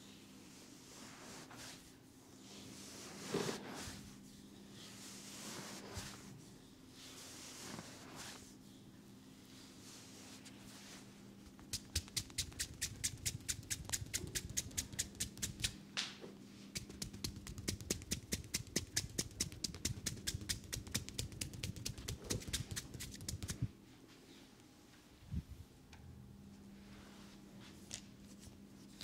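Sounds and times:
hands tapping on head: 11.7s - 15.8s, 16.8s - 23.6s.

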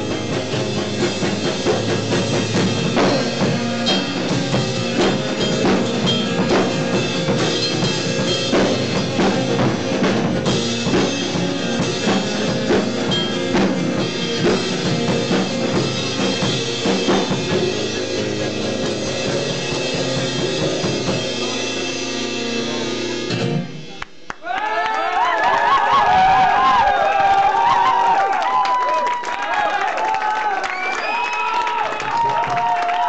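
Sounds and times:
guitar: 0.0s - 24.4s
rock band playing live: 0.0s - 24.5s
drum kit beating: 0.0s - 33.0s.

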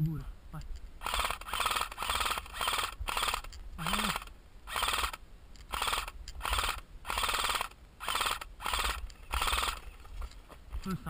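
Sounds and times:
airsoft rifle full-auto bursts: 1.0s - 9.9s.

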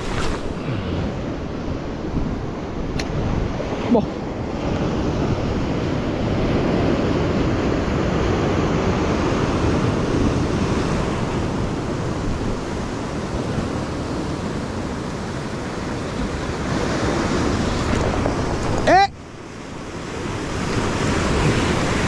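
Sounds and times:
sea surf washing over rocks: 0.0s - 22.0s.

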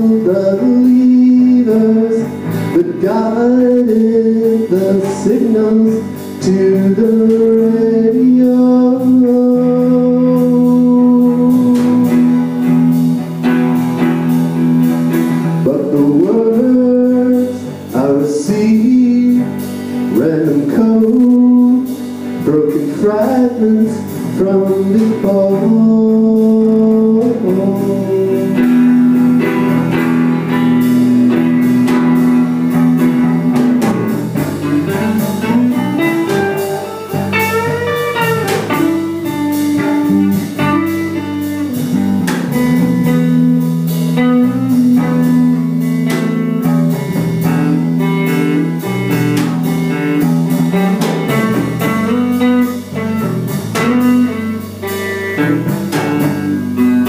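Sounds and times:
man singing: 0.0s - 12.7s, 15.5s - 46.8s
electric guitar: 0.0s - 57.0s
live band playing: 0.0s - 57.0s.

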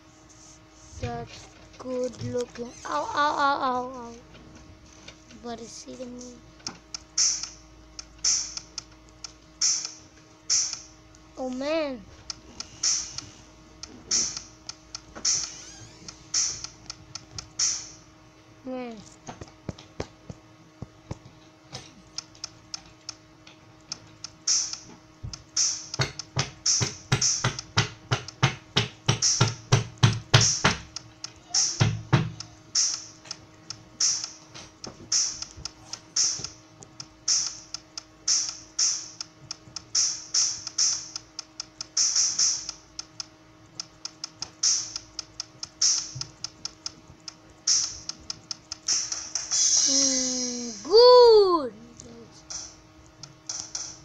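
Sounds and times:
faint steady hum: 0.0s - 54.0s
kick drum hits: 31.6s - 32.4s.

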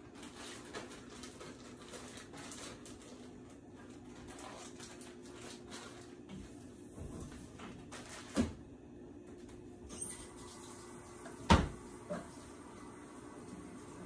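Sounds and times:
plastic bag crinkling: 0.0s - 6.2s, 7.8s - 8.4s.

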